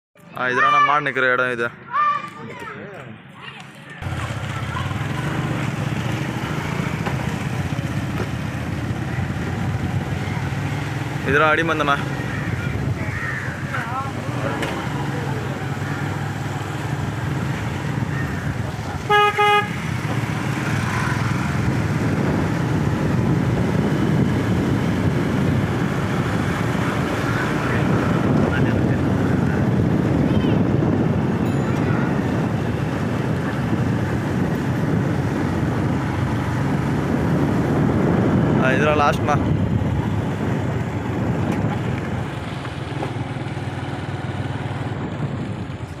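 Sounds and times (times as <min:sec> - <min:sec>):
wind noise: 0:04.0 - 0:14.5, 0:16.4 - 0:46.0
motorcycle engine running: 0:04.0 - 0:46.0
vehicle horn beeps: 0:19.1 - 0:19.9.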